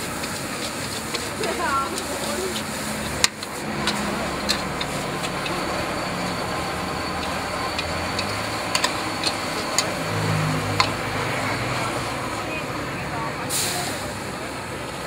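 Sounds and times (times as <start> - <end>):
metal spatula scraping wok: 0.0 - 12.0
gas burner hiss: 0.0 - 12.1, 13.5 - 15.0
car engine hum: 0.0 - 13.4.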